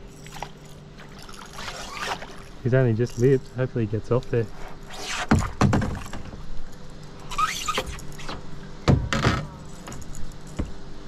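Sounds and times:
fish splashing: 0:00.0 - 0:03.2
water pump engine hum: 0:00.0 - 0:08.9.

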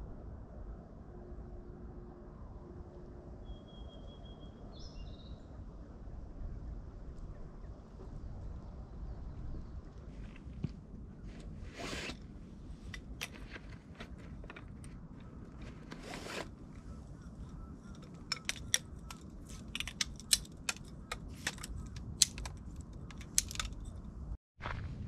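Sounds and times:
footsteps on rocky trail: 0:12.9 - 0:17.0.

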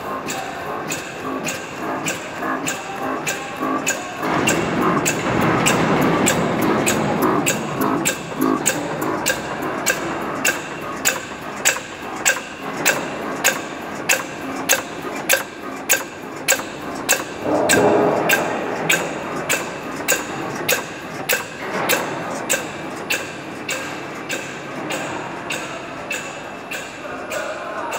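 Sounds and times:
machine clacking: 0:00.0 - 0:27.9
mechanical hum: 0:00.0 - 0:27.9.

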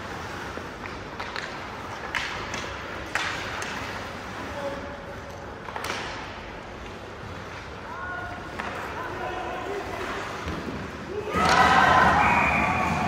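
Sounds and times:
hockey sticks clacking on puck: 0:00.7 - 0:04.0, 0:05.2 - 0:07.1, 0:08.4 - 0:09.2.

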